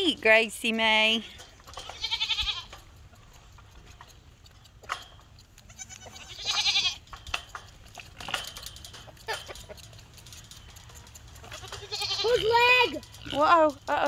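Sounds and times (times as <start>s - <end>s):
goat kids bleating: 1.6s - 3.0s, 5.5s - 7.2s, 11.0s - 13.4s.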